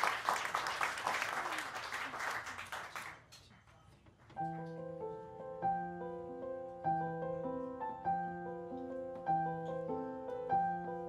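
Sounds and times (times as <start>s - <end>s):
audience applauding: 0.0s - 3.3s
grand piano chords: 4.4s - 11.0s.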